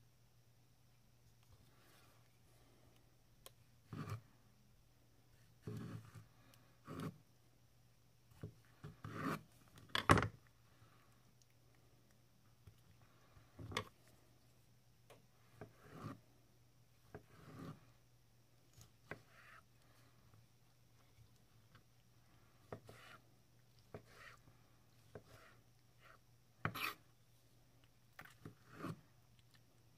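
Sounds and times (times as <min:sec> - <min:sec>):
faint steady hum: 0:00.0 - 0:29.9
knife cutting on wooden board: 0:03.9 - 0:04.3, 0:05.6 - 0:06.2, 0:06.8 - 0:07.2, 0:08.8 - 0:09.5, 0:15.6 - 0:16.2, 0:17.1 - 0:17.8, 0:22.7 - 0:23.2, 0:23.9 - 0:24.4, 0:25.1 - 0:27.0, 0:28.4 - 0:29.0.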